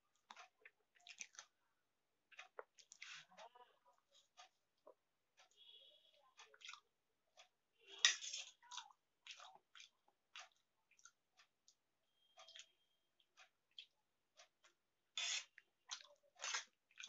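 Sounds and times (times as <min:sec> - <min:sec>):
chewing noodles: 0:00.1 - 0:01.6, 0:06.3 - 0:11.8, 0:12.4 - 0:17.0.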